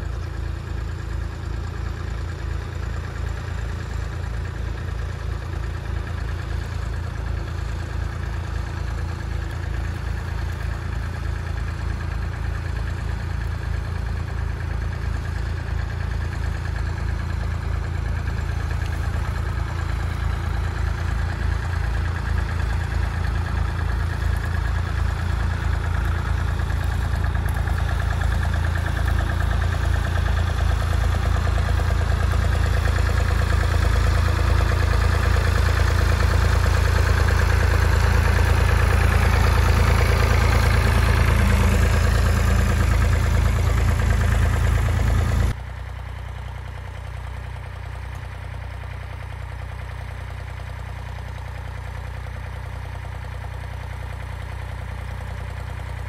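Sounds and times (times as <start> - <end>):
tractor engine under load: 0.0 - 56.0.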